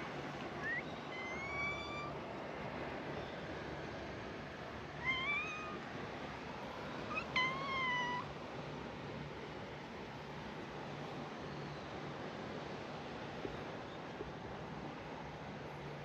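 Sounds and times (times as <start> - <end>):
cat meowing: 5.0 - 5.8, 7.1 - 8.3.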